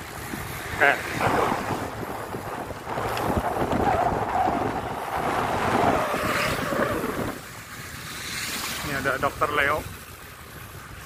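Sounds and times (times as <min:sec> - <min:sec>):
wind buffeting microphone: 0:00.0 - 0:07.6.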